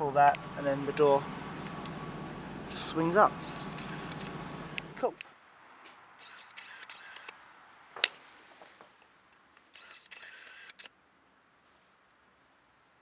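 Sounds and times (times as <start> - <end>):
camera lens motor whirring: 3.4 - 4.4, 6.2 - 7.3, 9.7 - 10.9
camera click: 6.2 - 7.4, 9.7 - 10.9.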